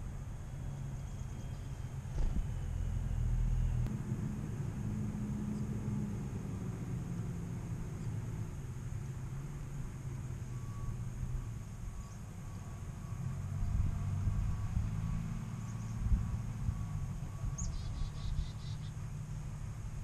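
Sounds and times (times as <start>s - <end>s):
steady low rumble: 0.0s - 9.0s
brief thump: 2.1s - 2.5s
chickadees chirping: 17.6s - 19.0s.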